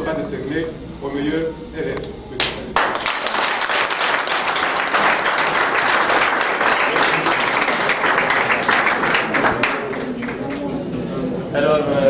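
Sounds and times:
lone claps: 2.4 - 10.6
audience clapping: 2.4 - 10.8.

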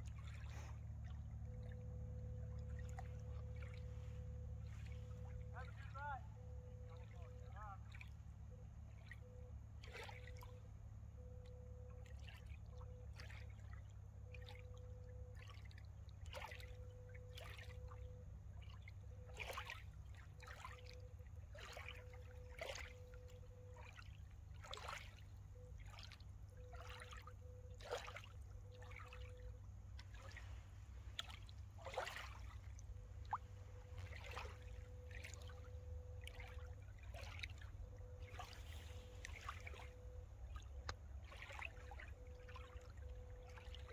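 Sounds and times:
small waves lapping on rocks: 2.3 - 6.2, 18.8 - 43.9.

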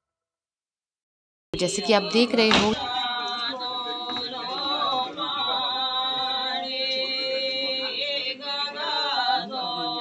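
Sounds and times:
voices chanting held notes: 1.6 - 10.0.

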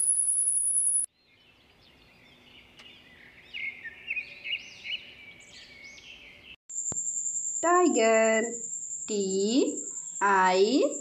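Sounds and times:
thin high whine: 0.0 - 1.1
small birds chirping: 0.8 - 6.6.

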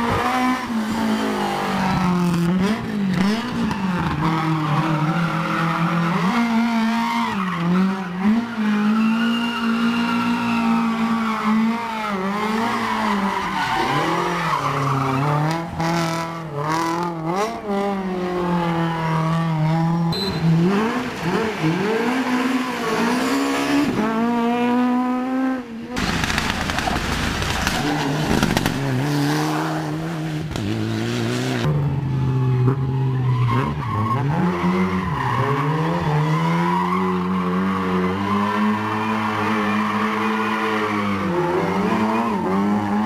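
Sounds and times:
rally car engines revving: 0.0 - 43.0
tyre squeal: 4.4 - 15.4.

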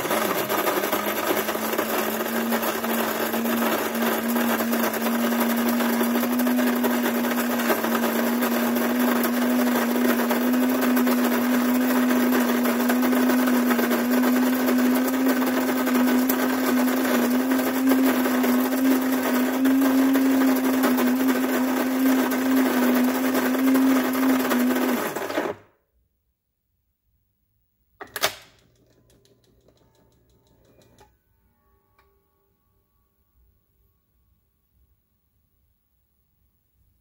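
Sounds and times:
coffee bean grinder humming: 0.0 - 25.7.

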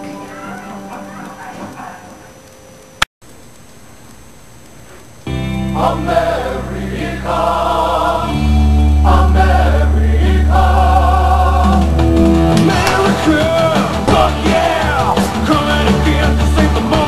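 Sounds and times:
steady bass: 5.3 - 17.0
person singing: 5.7 - 17.0
rock band playing: 11.6 - 17.0.

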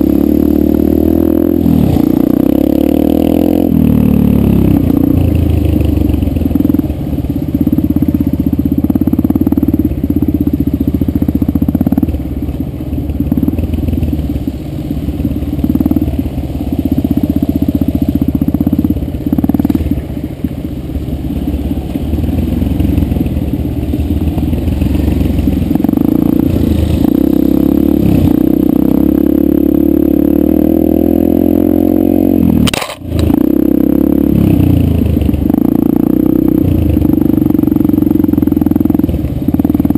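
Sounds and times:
dirt bike engine revving: 0.0 - 12.1, 24.1 - 39.9.

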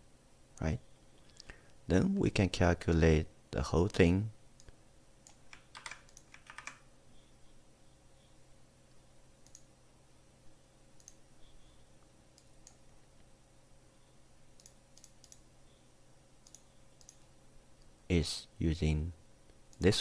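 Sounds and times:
low steady hum: 0.0 - 20.0
keyboard and mouse clicks: 4.6 - 6.8, 9.4 - 9.7, 11.0 - 11.2, 14.6 - 15.4, 16.4 - 17.2.

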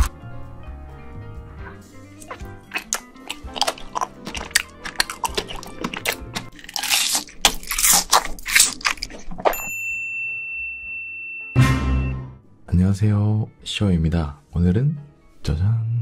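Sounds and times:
background music: 0.0 - 9.2, 10.8 - 16.0
crunchy bites and chewing: 2.2 - 9.6
steady high chime tone: 9.6 - 12.3.

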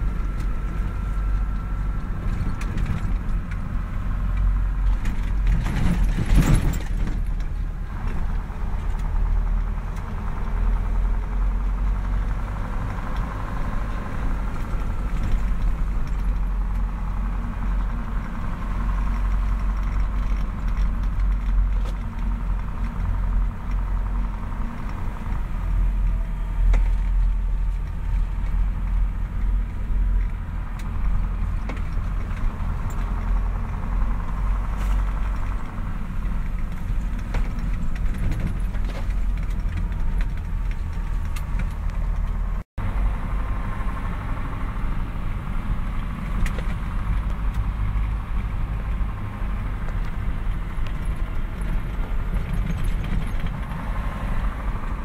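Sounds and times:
truck engine rumbling: 0.0 - 55.0
loud clatter: 4.9 - 9.5.

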